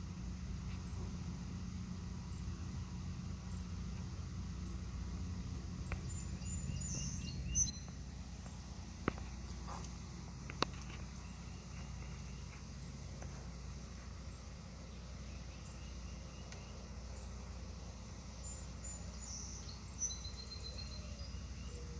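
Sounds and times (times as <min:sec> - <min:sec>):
steady low rumble: 0:00.0 - 0:21.9
high chirping: 0:05.7 - 0:08.6, 0:18.3 - 0:21.9.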